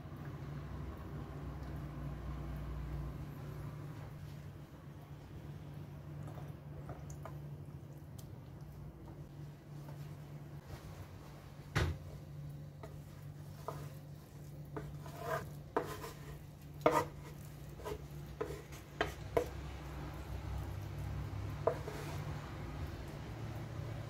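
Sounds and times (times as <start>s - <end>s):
low steady hum: 0.0s - 24.0s
spoon scraping frying pan: 12.8s - 22.5s.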